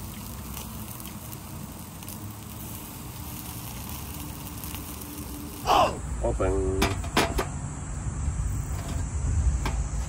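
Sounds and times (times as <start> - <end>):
meat sizzling on a grill: 0.0 - 10.0.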